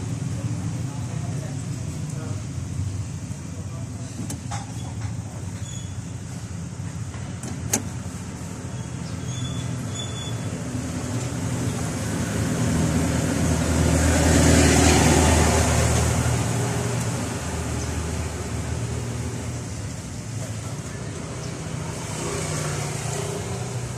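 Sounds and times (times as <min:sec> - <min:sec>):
vehicle passing: 0:11.8 - 0:19.5, 0:21.2 - 0:23.9.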